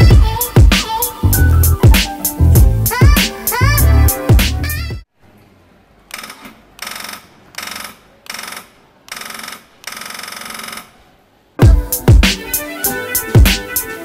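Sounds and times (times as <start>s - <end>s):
background music: 0.0s - 5.0s, 11.6s - 14.0s.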